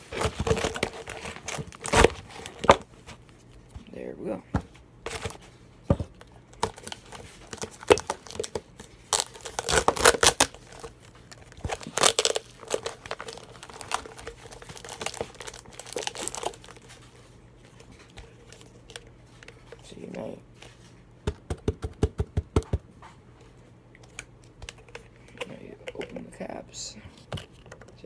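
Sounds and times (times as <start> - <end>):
tape and plastic crinkling: 0.0 - 3.7, 5.1 - 21.0.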